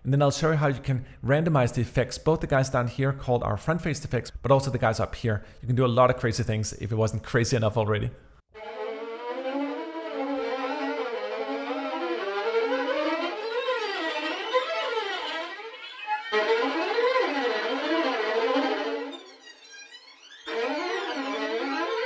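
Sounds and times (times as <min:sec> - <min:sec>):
violin glissando textures: 0:08.6 - 0:22.0.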